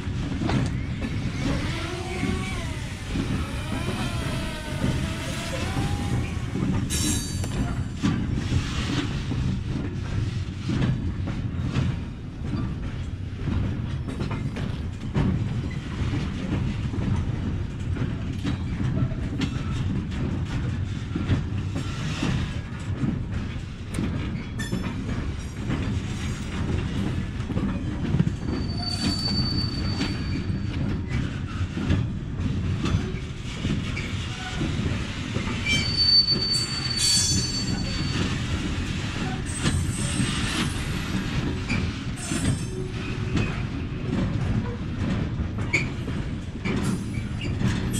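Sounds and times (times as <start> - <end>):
freight wagons rumbling on rails: 0.0 - 47.9
high wheel squeals: 0.6 - 7.9, 28.5 - 30.7, 35.6 - 38.6
metallic clanks from couplings: 41.7 - 47.9.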